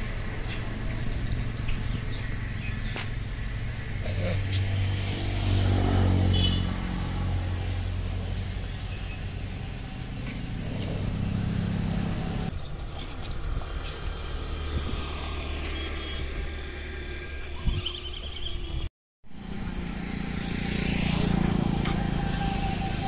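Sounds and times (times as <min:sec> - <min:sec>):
vehicle engine running: 0:00.0 - 0:12.5.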